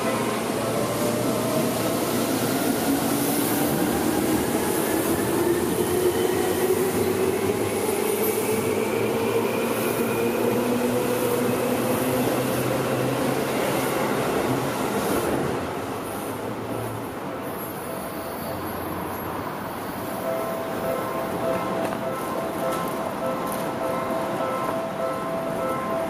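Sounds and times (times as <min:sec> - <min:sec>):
train wheel and rail noise: 0:00.0 - 0:26.0.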